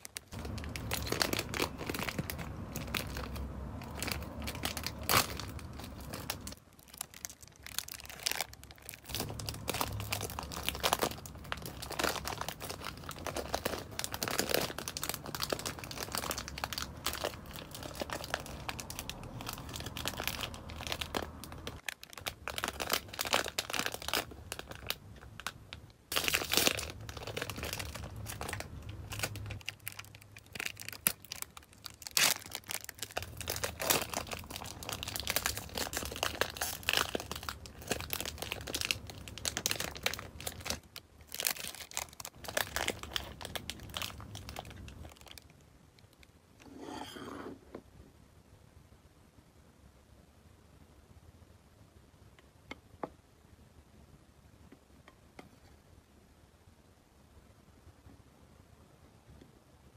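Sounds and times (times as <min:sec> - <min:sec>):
plastic packaging crinkling: 0:00.0 - 0:46.3.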